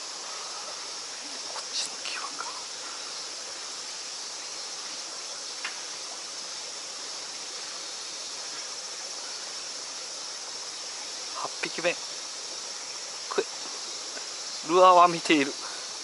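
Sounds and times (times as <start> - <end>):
high-pitched insect chorus: 0.0 - 16.0
faint click: 5.6 - 5.8.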